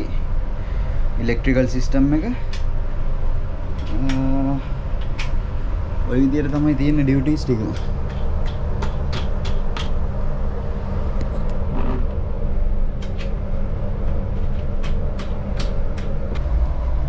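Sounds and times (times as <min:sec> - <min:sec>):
low machinery rumble: 0:00.0 - 0:17.0
hatch fastener clicks and taps: 0:08.1 - 0:10.0.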